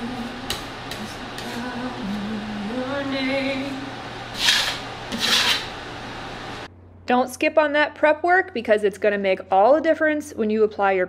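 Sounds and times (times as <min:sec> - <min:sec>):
woman singing: 0:00.0 - 0:04.0
steady mechanical hum: 0:00.0 - 0:11.0
putty knife scraping a wall: 0:04.4 - 0:05.7.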